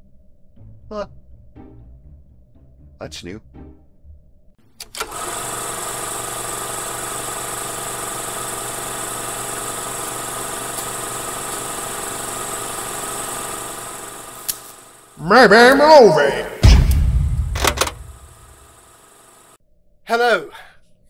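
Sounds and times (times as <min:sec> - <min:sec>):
projector clicks: 0:04.8 - 0:05.4, 0:10.3 - 0:14.9, 0:16.8 - 0:18.7
film projector whirring: 0:04.8 - 0:16.2, 0:17.0 - 0:19.6.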